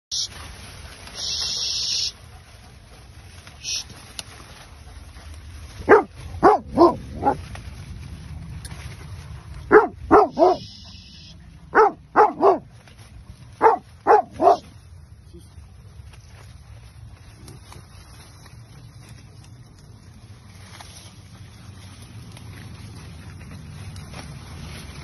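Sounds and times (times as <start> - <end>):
steady low rumble: 0.4 - 25.0
dog barking: 5.8 - 7.4, 9.7 - 11.0, 11.7 - 12.7, 13.6 - 14.7.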